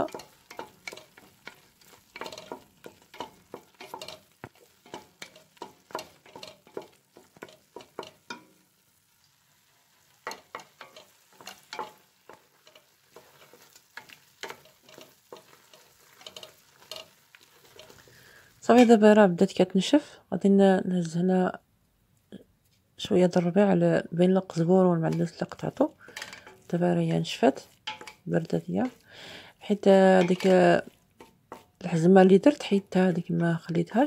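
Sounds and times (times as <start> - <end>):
wooden spoon scraping steel pot: 0.0 - 8.5, 10.2 - 19.2, 24.4 - 29.1, 29.7 - 34.0.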